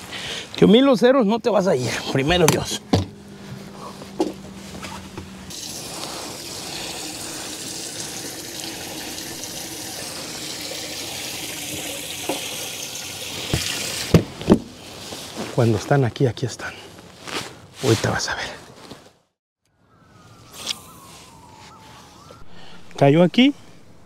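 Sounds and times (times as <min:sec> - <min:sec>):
water running into a well: 0:05.5 - 0:14.2.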